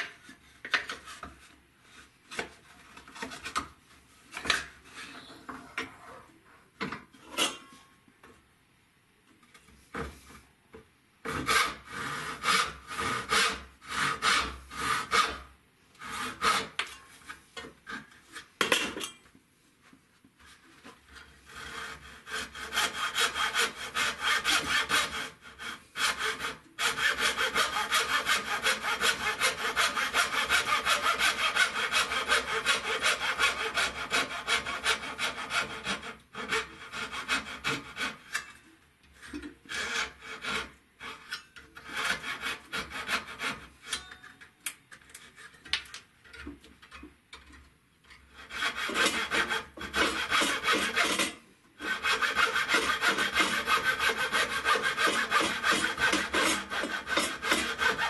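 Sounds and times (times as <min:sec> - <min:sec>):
hand saw cutting wood: 0:11.2 - 0:17.0, 0:21.2 - 0:38.5, 0:39.6 - 0:44.1, 0:48.3 - 0:58.0
rubbing and handling of wood: 0:51.8 - 0:58.0.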